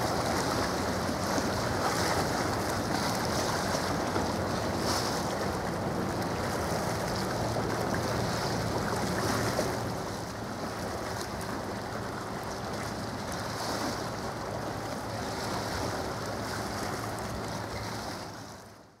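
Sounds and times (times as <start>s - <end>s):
choppy sea water washing: 0.0s - 19.0s.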